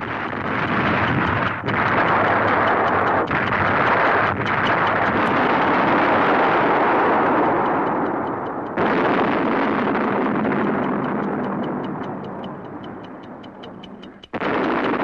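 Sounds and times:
explosion rumbling roar: 0:00.0 - 0:12.7
fast even ticks: 0:00.0 - 0:15.0.

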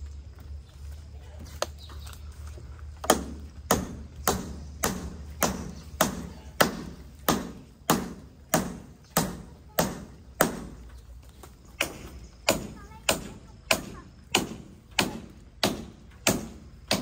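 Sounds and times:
heavy chopping on a block: 0:03.0 - 0:10.8, 0:11.8 - 0:17.0.

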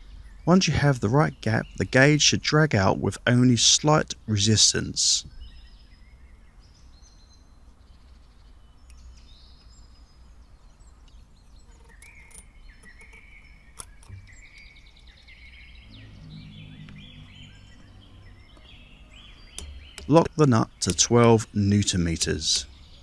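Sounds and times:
faint birdsong chirps and trills: 0:00.0 - 0:23.0
low rumble: 0:15.3 - 0:20.0.

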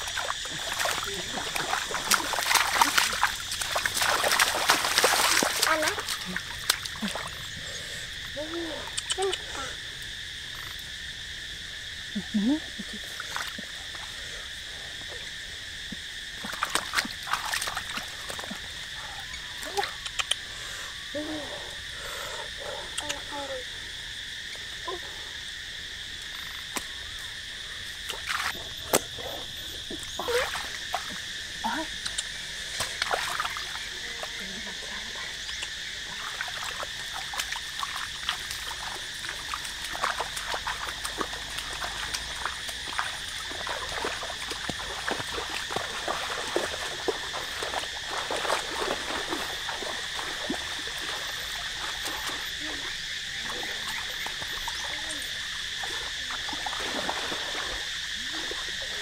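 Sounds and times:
water splashing from wading: 0:00.0 - 0:07.7, 0:16.2 - 0:20.2, 0:28.0 - 0:59.0
frogs and insects chorus: 0:00.0 - 0:59.0.

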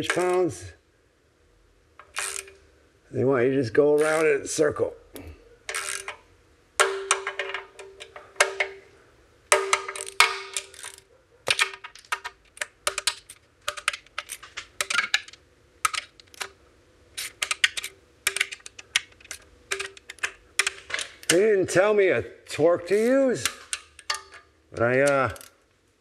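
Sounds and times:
ratchet wrench clicking: 0:02.0 - 0:02.6, 0:04.0 - 0:04.3, 0:05.7 - 0:06.2, 0:09.7 - 0:11.0, 0:17.2 - 0:21.4, 0:23.0 - 0:25.5.

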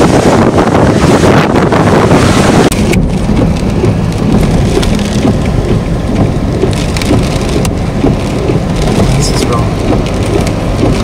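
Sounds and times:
car tyres crunching on gravel: 0:02.6 - 0:11.0.

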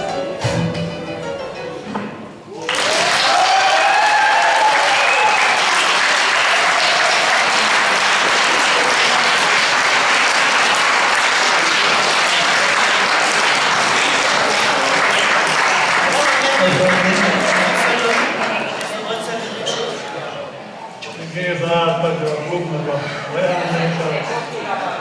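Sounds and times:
audience applauding: 0:02.6 - 0:19.4.

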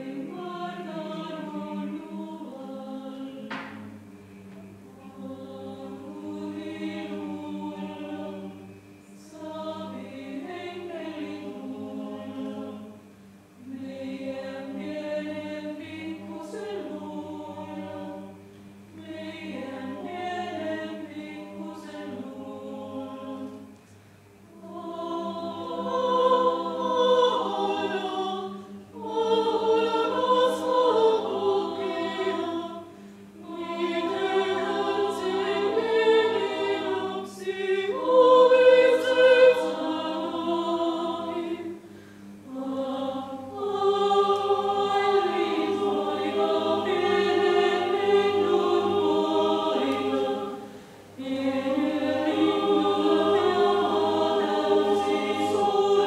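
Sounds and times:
choir singing a cappella: 0:00.0 - 0:56.0
breaths between phrases: 0:41.8 - 0:42.4, 0:50.6 - 0:51.1.

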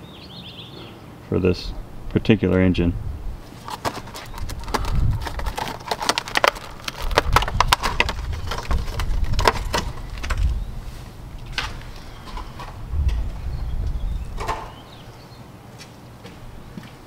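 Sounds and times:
plastic parts clicking and tapping: 0:03.7 - 0:10.5
low rumble: 0:07.0 - 0:14.8.

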